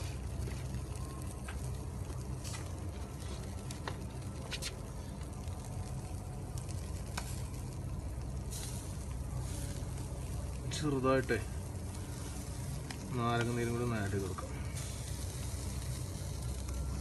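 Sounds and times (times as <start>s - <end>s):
meat sizzling on a grill: 0.0s - 17.0s
sharp pops and crackles: 0.2s - 8.4s.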